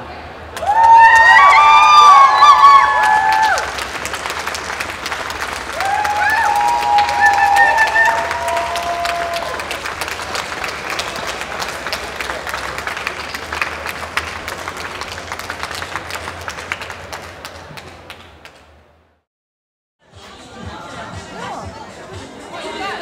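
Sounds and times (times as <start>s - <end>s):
large audience applauding: 0.6s - 18.6s.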